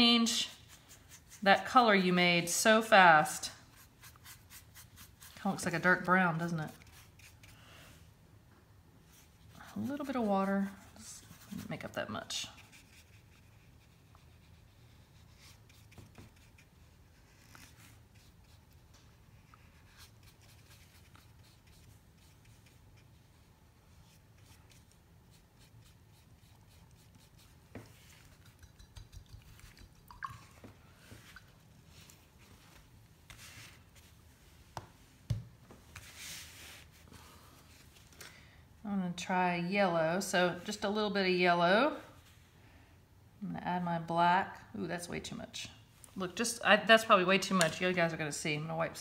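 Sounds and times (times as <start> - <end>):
paintbrush scratching on paper: 0.0 - 2.4, 3.4 - 7.6, 9.1 - 30.0
low room hum: 0.0 - 49.0.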